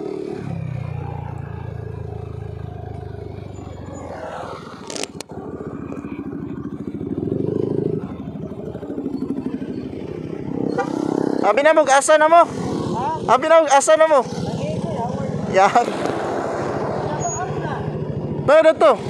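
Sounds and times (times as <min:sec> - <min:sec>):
scooter engine running: 0:00.0 - 0:13.3.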